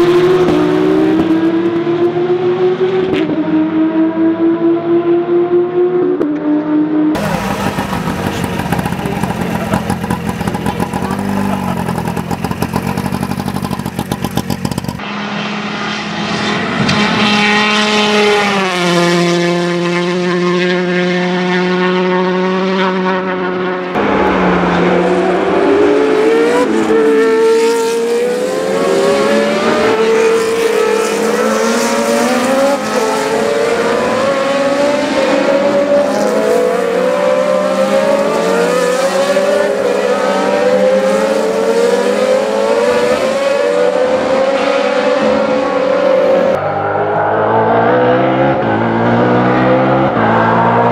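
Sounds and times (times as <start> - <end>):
engine at steady revs: 0.0 - 50.9
race cars accelerating through gears: 0.0 - 50.9
two-stroke car engine pulling away: 7.2 - 15.0.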